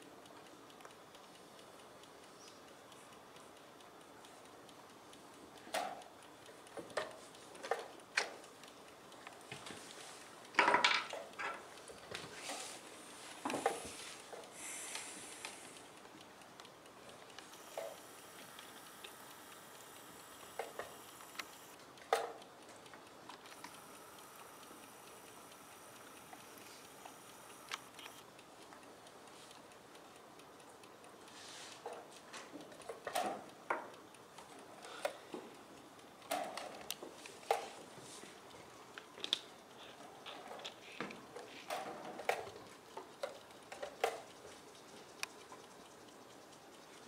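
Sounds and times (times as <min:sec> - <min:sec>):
chess clock ticking: 0:00.0 - 0:47.0
sharp clicks and knocks: 0:05.6 - 0:12.6.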